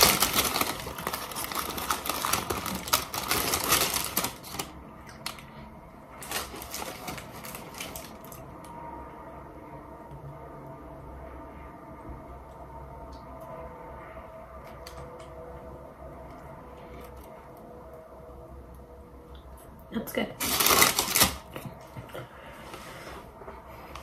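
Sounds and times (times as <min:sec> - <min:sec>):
paper wrapper crinkling: 0:00.0 - 0:05.4, 0:06.2 - 0:08.4, 0:20.4 - 0:21.6.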